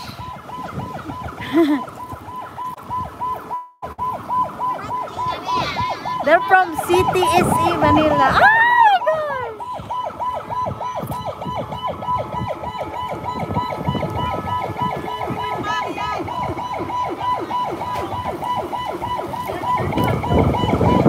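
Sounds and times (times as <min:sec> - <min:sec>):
police siren yelping: 0:00.0 - 0:21.0.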